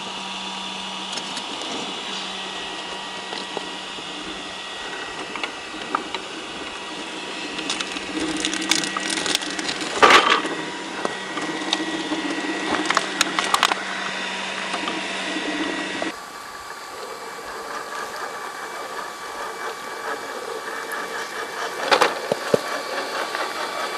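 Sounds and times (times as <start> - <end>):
electric motor whining: 0.0 - 23.9.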